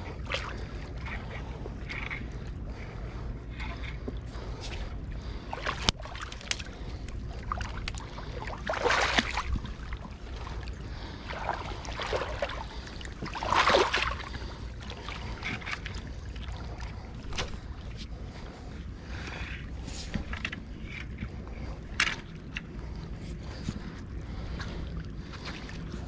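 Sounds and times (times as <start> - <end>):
steady low rumble: 0.0 - 26.0
river water splashing around log: 5.6 - 10.6, 11.2 - 14.5.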